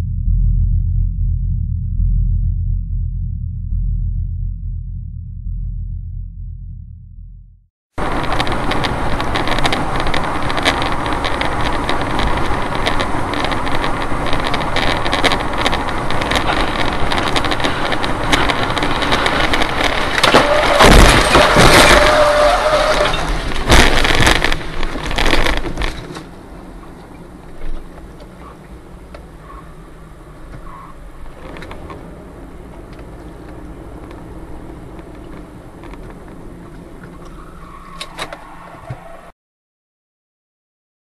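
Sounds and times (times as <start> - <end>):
brief steady whine: 0.0 - 7.6
road and wind noise: 7.9 - 39.4
loud bangs and crashes: 16.3 - 25.6.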